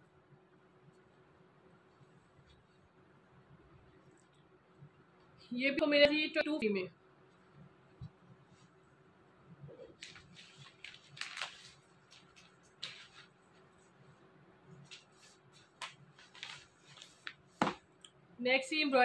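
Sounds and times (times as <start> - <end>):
cloth rustling: 9.7 - 17.9.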